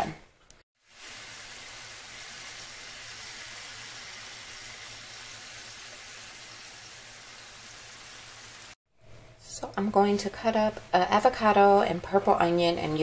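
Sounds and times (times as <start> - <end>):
meat sizzling in a frying pan: 0.8 - 8.8.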